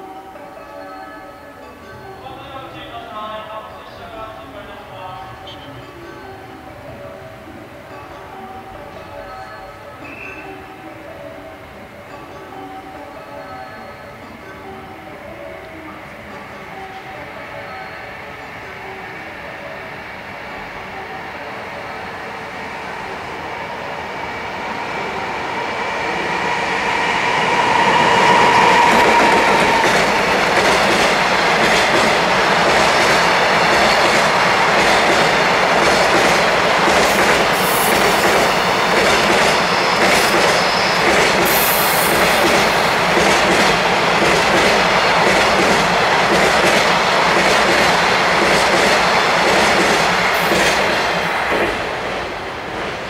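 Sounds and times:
freight train passing: 0.0s - 53.0s
high wheel squeals: 10.0s - 10.7s, 21.8s - 31.4s, 37.5s - 43.1s.

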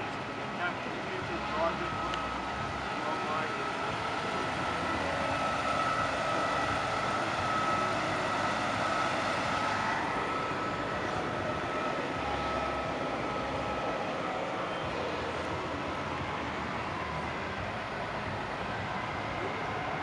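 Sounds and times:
steady high whine: 0.0s - 20.0s
truck diesel engine passing: 0.0s - 20.0s.

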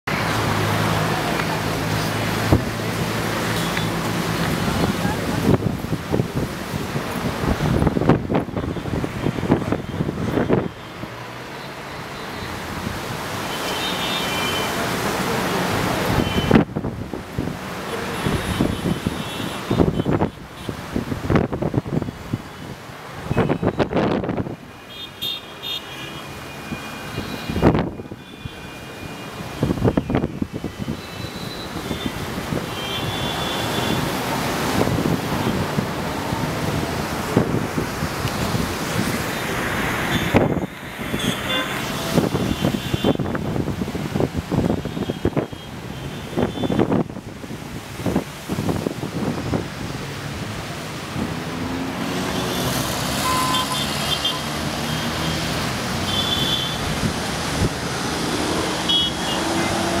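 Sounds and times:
road traffic passing: 0.0s - 60.0s
wind on microphone: 4.1s - 10.8s, 23.2s - 24.6s, 29.4s - 53.4s
car horn beeps: 13.5s - 14.8s, 16.2s - 16.6s, 24.9s - 30.2s, 30.8s - 34.1s, 41.1s - 43.3s, 52.3s - 55.1s, 56.0s - 56.9s, 58.8s - 59.9s.

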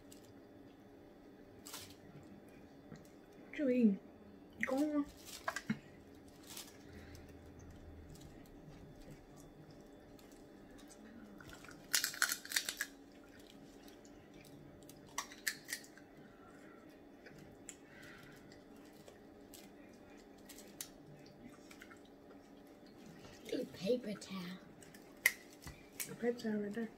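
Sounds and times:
faint room hum: 0.0s - 26.9s
crab shells cracking: 11.4s - 14.1s, 14.8s - 16.1s, 24.8s - 26.1s.

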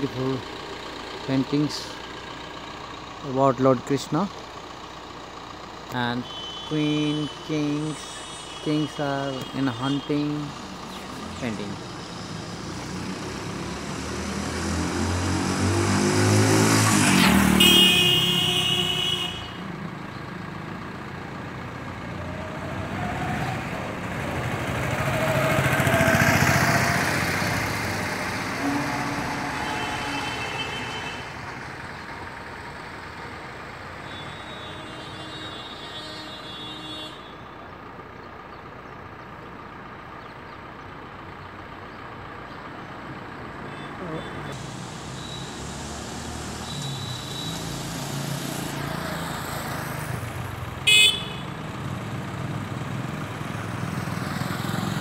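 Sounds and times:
vehicles passing: 0.0s - 55.0s
vehicle horns tooting: 6.0s - 10.6s, 17.4s - 19.7s, 28.4s - 31.4s, 34.0s - 37.5s, 46.6s - 47.8s, 50.8s - 51.6s.

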